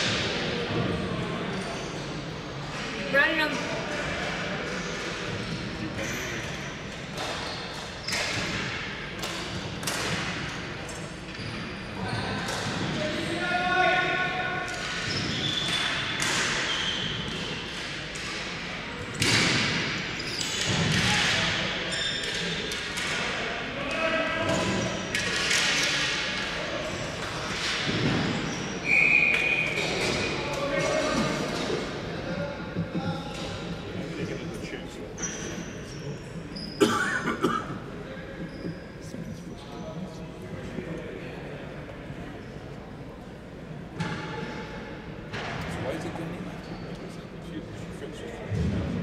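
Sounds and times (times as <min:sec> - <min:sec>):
hockey sticks striking ball: 0:07.1 - 0:10.5, 0:14.7 - 0:21.6, 0:22.2 - 0:26.6, 0:27.2 - 0:31.7
referee's whistle: 0:28.8 - 0:29.9.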